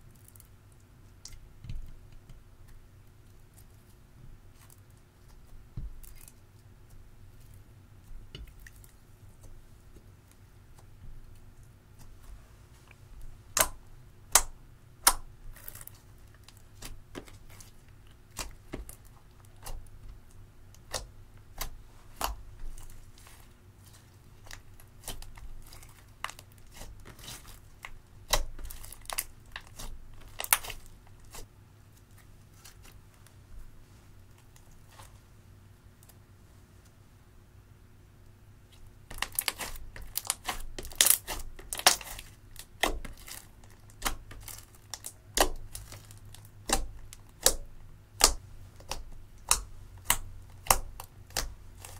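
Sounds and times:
soft sticky crackle: 0.0s - 13.6s, 15.4s - 35.3s, 38.7s - 51.9s
slime clicking and popping: 46.6s - 51.6s.

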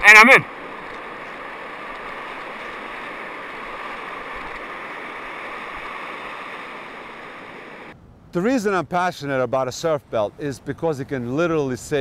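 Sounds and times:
breaking surf: 0.0s - 8.0s.

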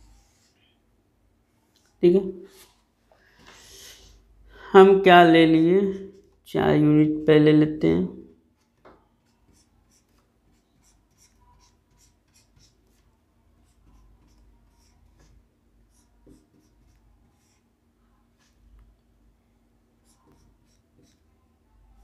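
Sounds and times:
marker squeaking on whiteboard: 9.2s - 17.6s, 20.0s - 21.3s.

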